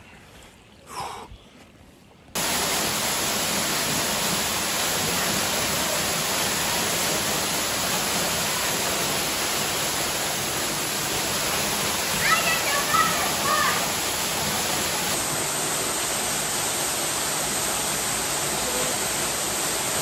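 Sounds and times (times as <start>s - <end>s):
waterfall pouring into pool: 2.4s - 20.0s.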